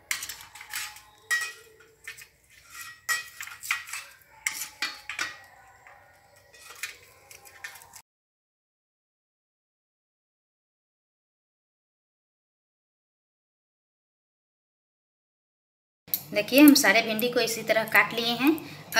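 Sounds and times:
metal plate ringing: 0.0 - 2.0
knife tapping and scraping on steel: 0.0 - 8.0.

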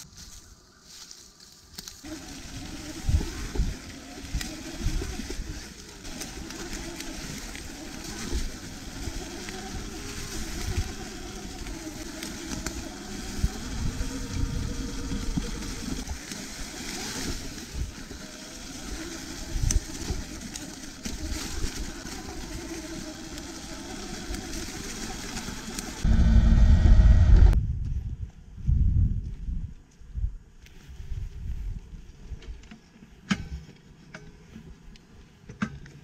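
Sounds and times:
faint electric motor whine: 1.8 - 27.6
wind rumble on microphone: 2.4 - 5.8, 8.2 - 16.2, 26.0 - 32.6.

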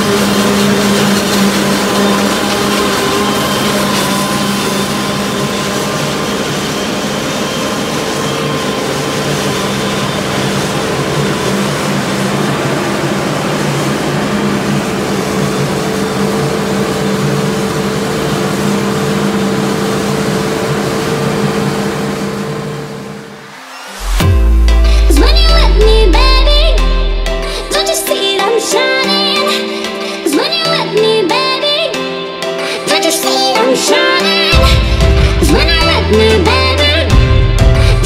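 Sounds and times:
tractor engines: 0.0 - 25.8.

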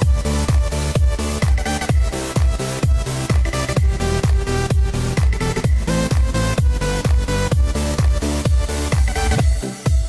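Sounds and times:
kick drum beat: 0.0 - 10.0.

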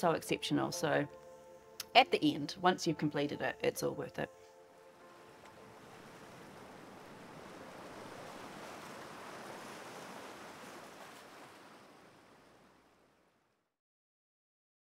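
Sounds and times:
ocean surf on a beach: 5.0 - 13.0.

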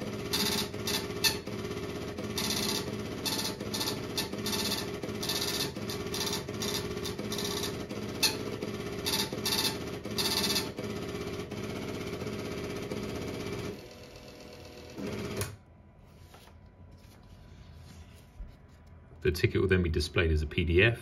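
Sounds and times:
ticket printer buzzing: 0.0 - 15.6.

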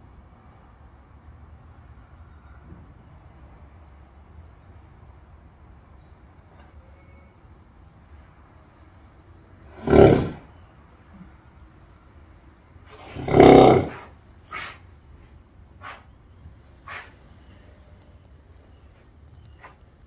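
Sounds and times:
faint bird chirps: 4.4 - 9.7
horse snoring groan: 9.7 - 10.5, 12.9 - 14.1.

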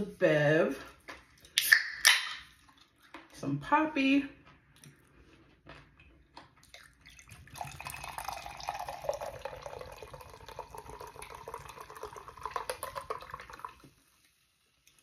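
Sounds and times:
soda pouring and fizzing in glass: 6.6 - 15.0.

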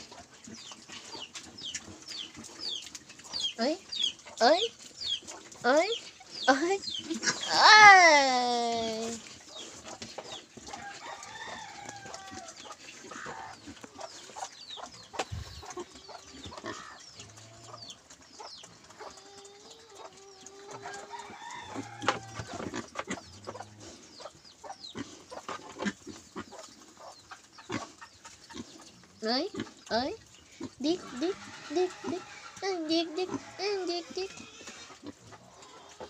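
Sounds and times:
chickens clucking: 0.0 - 7.6, 8.8 - 36.0.

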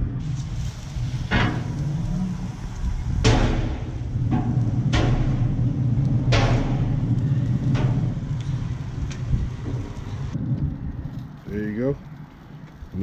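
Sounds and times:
chicken sizzling on grill: 0.0 - 5.6
low rumble: 0.0 - 13.0.

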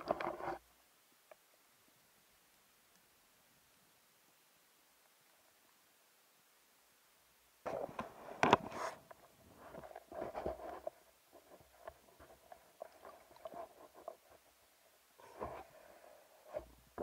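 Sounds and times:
underwater knocks and rubbing: 0.0 - 0.6, 7.7 - 14.5.

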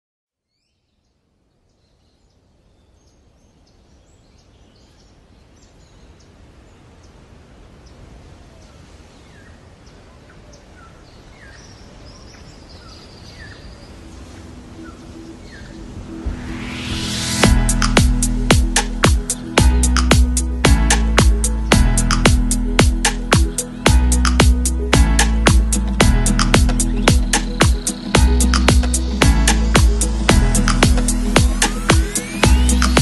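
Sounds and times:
outdoor background hiss: 0.4 - 33.0
small birds chirping: 0.5 - 16.1, 22.9 - 33.0.

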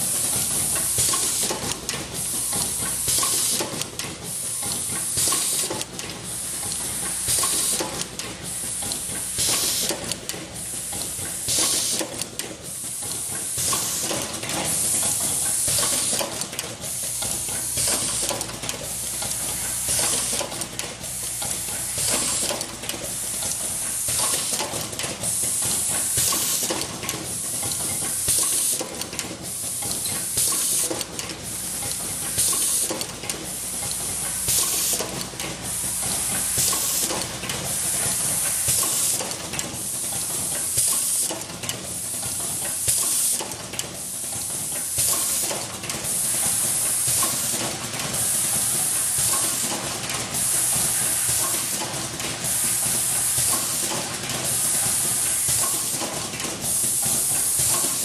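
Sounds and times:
machine clattering and clicking: 0.0 - 58.0
pneumatic air hiss bursts: 6.6 - 7.9, 11.4 - 12.1, 12.8 - 14.2, 25.4 - 26.8, 30.2 - 31.0, 32.3 - 33.0, 33.6 - 35.2, 35.8 - 39.3, 42.1 - 43.4, 44.9 - 47.6, 48.2 - 49.7, 52.5 - 56.1.

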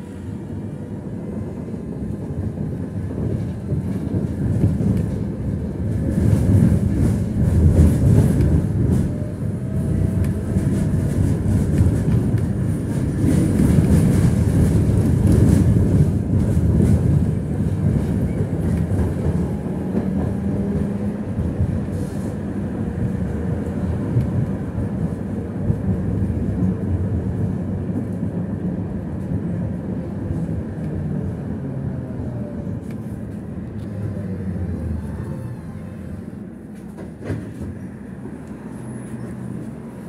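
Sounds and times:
tram rumbling along track: 0.0 - 40.0
click: 32.8 - 33.1.

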